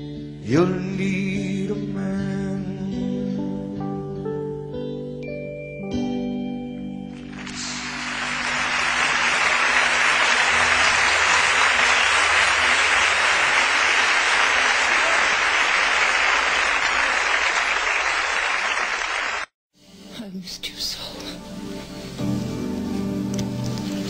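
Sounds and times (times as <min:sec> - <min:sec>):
audience applauding: 0:07.2 - 0:19.5.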